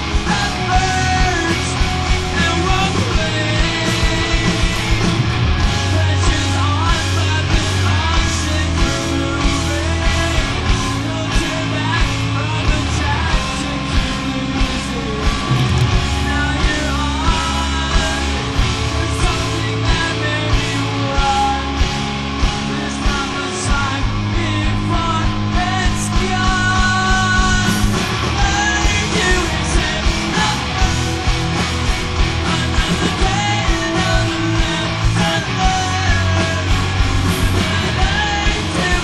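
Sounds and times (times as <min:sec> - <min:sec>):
person singing: 0:00.0 - 0:31.3, 0:32.3 - 0:39.0
distorted electric guitars and bass: 0:00.0 - 0:39.0
drum beat: 0:14.8 - 0:24.2, 0:25.0 - 0:39.0.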